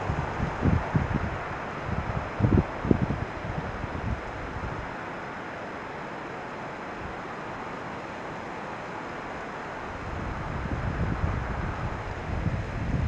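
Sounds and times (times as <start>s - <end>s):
wind buffeting microphone: 0.0s - 5.0s, 9.8s - 13.0s
steady outdoor noise: 0.0s - 13.0s.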